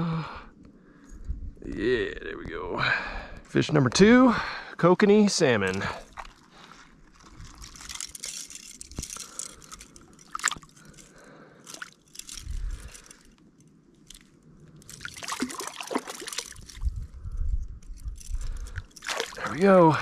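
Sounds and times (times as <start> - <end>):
crunches and scrapes on stones: 5.4 - 20.0
water sloshing and dripping: 5.7 - 17.1, 18.2 - 19.9.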